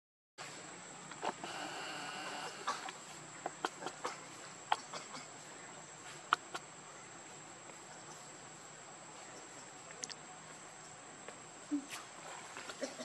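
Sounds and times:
high-pitched insect drone: 1.4s - 2.7s.

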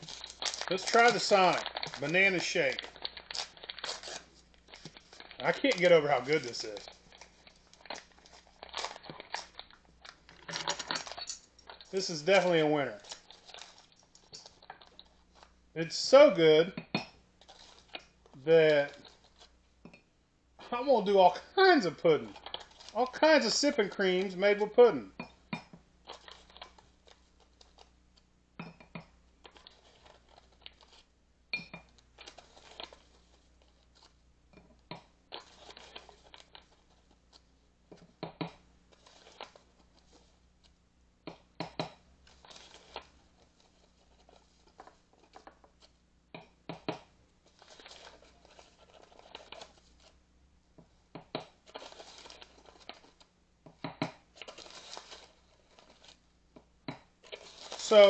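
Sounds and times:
paper packet rustling: 0.0s - 16.3s, 17.4s - 19.6s, 20.6s - 25.0s, 26.0s - 27.9s, 29.4s - 31.1s, 32.0s - 34.2s, 35.3s - 37.5s, 38.9s - 40.7s, 42.2s - 46.0s, 47.4s - 50.2s, 51.5s - 53.3s, 54.2s - 56.3s, 57.2s - 58.0s.

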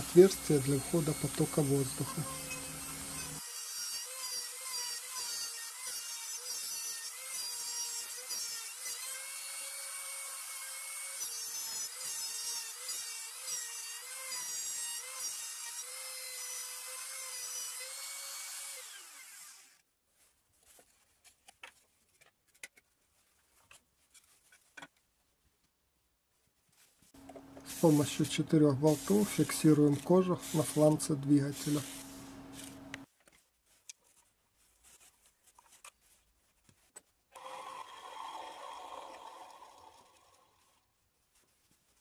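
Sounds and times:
router cutting plywood: 0.0s - 19.8s.

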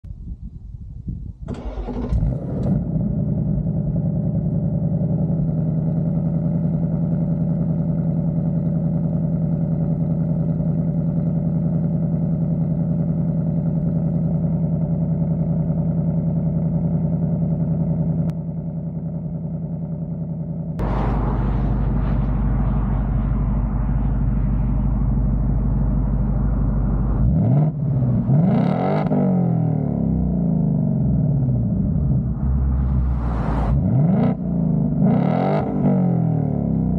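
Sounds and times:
car engine starting: 1.4s - 36.9s
car engine idling: 2.8s - 35.2s.

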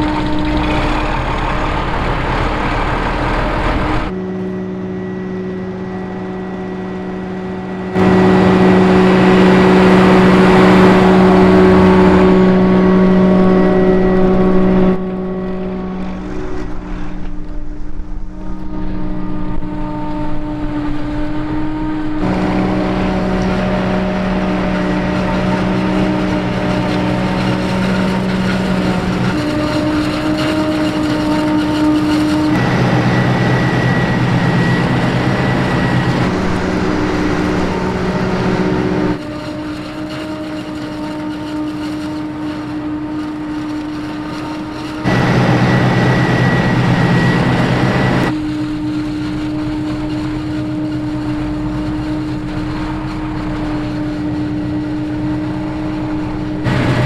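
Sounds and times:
tractor engine running: 0.0s - 57.0s
forage harvester chopping maize: 38.9s - 54.2s.

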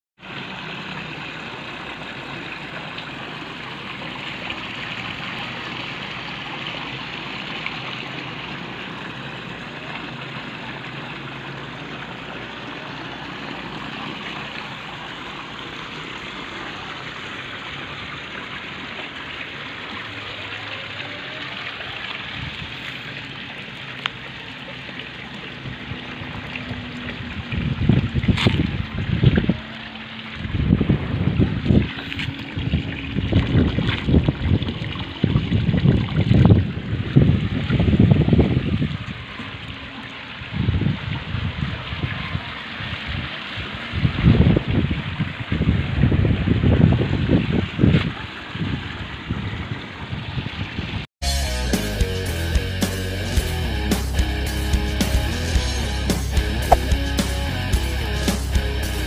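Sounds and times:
water jets splashing into pool: 0.2s - 51.1s, 53.7s - 59.0s
low rumbling: 52.1s - 59.0s.

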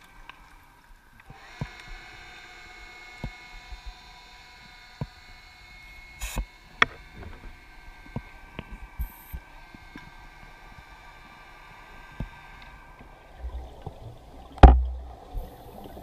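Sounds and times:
high underwater whine: 0.0s - 16.0s
sharp clicks and knocks: 14.6s - 15.0s.

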